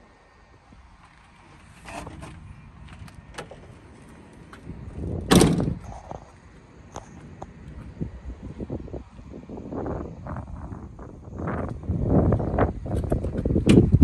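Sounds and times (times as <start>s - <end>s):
car door shutting thump: 5.3s - 5.8s.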